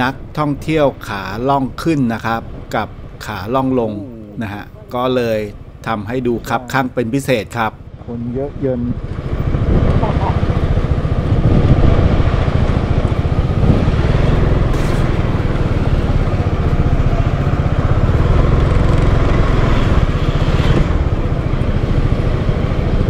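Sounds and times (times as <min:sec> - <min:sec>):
scooter engine running: 0:07.8 - 0:23.0.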